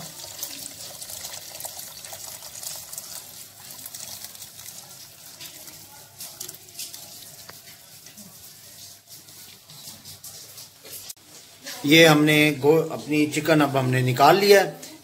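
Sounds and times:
liquid pouring through strainer: 0.0s - 11.1s.

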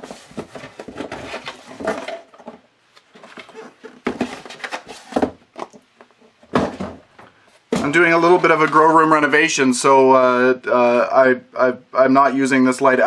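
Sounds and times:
cardboard and paper rustling: 0.0s - 5.8s.

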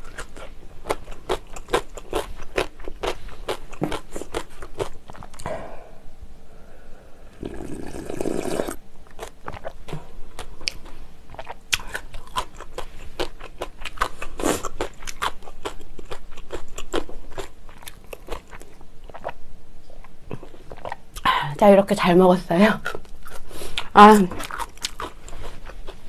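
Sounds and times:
crunchy wet chewing: 0.0s - 5.5s, 9.1s - 19.4s, 22.8s - 26.0s
slurping broth: 7.4s - 8.8s.

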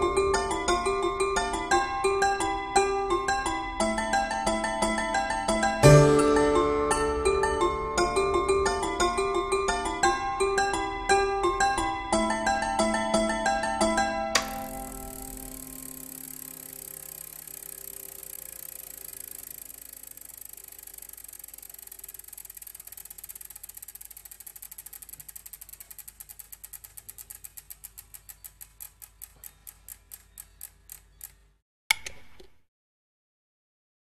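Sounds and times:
music: 0.0s - 15.5s
clockwork ratchet ticking: 14.4s - 31.5s.

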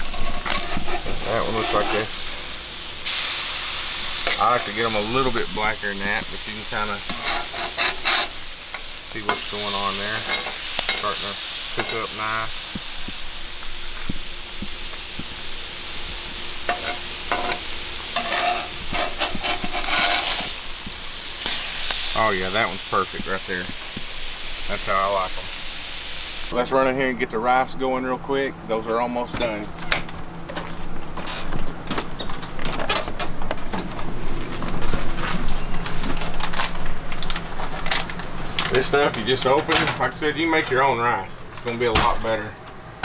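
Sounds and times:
fish sizzling in a pan: 0.0s - 26.6s.

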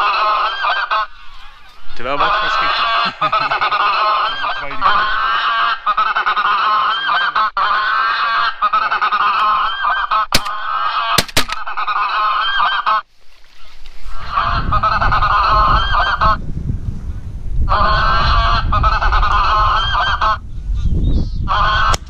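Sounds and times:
geese honking: 0.0s - 16.4s, 17.7s - 20.4s, 21.4s - 22.0s
wind rumbling on microphone: 13.6s - 22.0s.

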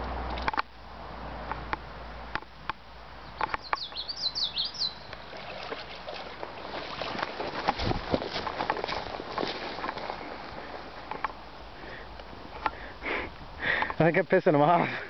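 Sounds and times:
small bird chirping: 3.2s - 5.2s
moose splashing through water: 5.0s - 11.6s.

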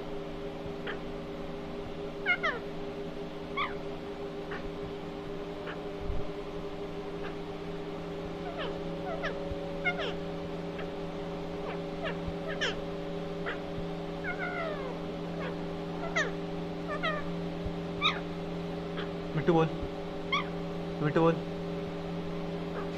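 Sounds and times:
steady low hum: 0.0s - 22.9s
parakeet squeaky calls: 0.8s - 1.0s, 2.2s - 2.6s, 3.5s - 3.8s, 7.2s - 7.4s, 8.4s - 10.2s, 11.6s - 17.3s, 18.0s - 18.3s, 18.9s - 19.2s, 20.3s - 20.6s.

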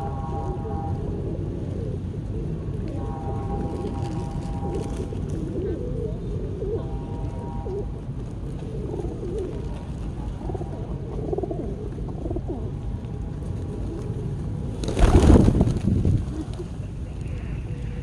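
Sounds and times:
pigeons cooing: 0.6s - 7.0s, 8.6s - 12.8s.

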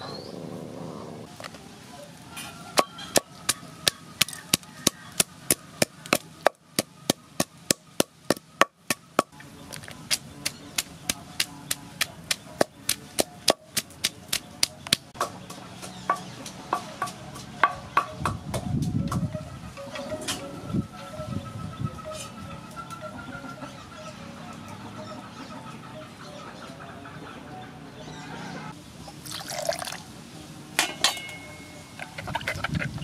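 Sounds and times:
pestle pounding in wooden mortar: 2.8s - 9.4s, 10.1s - 18.4s.

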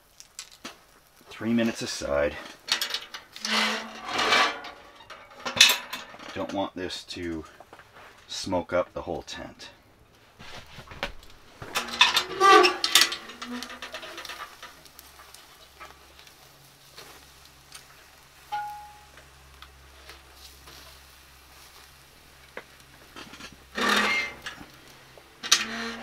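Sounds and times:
steaks sizzling on hot coals: 0.0s - 4.0s, 11.1s - 26.0s
stove door clanking and scraping: 2.3s - 6.6s, 10.4s - 15.9s, 23.1s - 24.8s, 25.4s - 26.0s
metallic ring: 18.5s - 19.2s.

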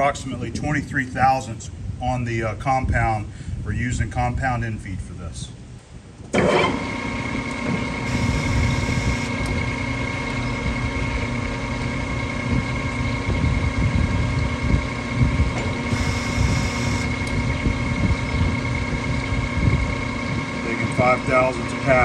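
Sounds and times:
metal lathe whining: 6.6s - 13.3s, 14.9s - 19.2s
threading tool hissing: 15.9s - 17.1s.

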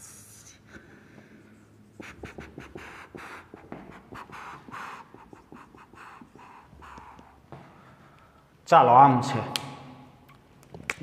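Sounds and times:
marker writing on whiteboard: 1.5s - 7.6s.

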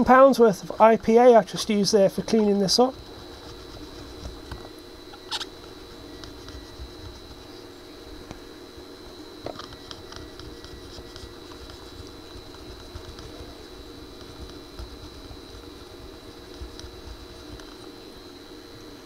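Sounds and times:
faint high whine: 0.0s - 19.0s
steady background hum: 0.0s - 19.0s
circuit board clicks and scrapes: 3.2s - 7.4s, 9.5s - 17.9s.

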